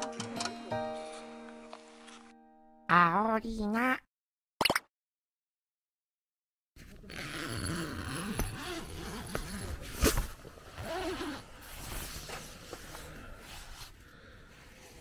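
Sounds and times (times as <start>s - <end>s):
tent zipper opening: 6.8s - 13.0s
tent fabric rustling: 6.8s - 14.0s.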